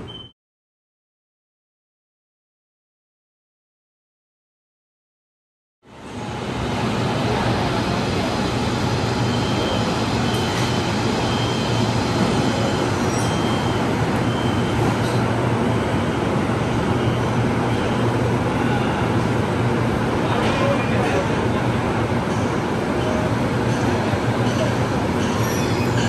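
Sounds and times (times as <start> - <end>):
short high beeps: 0.0 - 0.3
stationary train humming: 5.8 - 26.0
station noise: 6.2 - 26.0.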